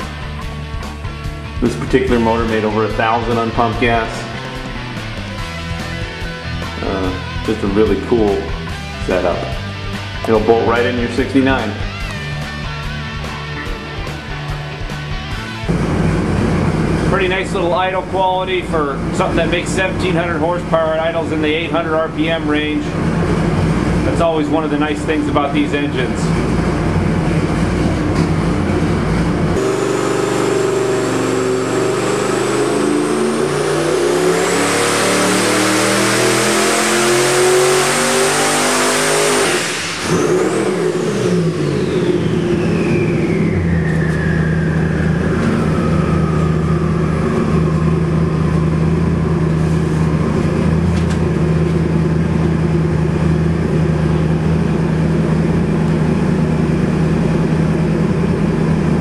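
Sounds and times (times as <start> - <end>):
engine revving on dyno: 1.0 - 9.6, 15.3 - 59.0
turbo whistle: 29.6 - 34.8, 39.4 - 48.9.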